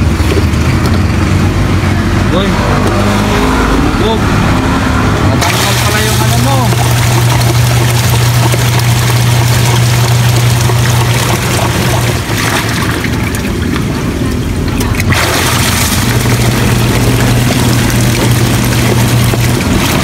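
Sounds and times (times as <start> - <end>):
washing machine motor hum: 0.0 - 20.0
water churning and splashing: 5.4 - 20.0.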